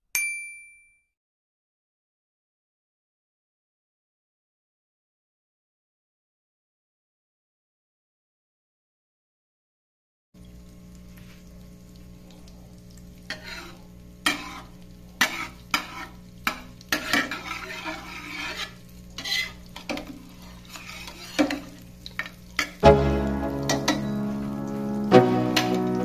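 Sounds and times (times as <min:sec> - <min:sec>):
utensil stirring in a pan: 0:11.2 - 0:22.8
low steady hum: 0:18.9 - 0:26.0
background music: 0:22.8 - 0:26.0.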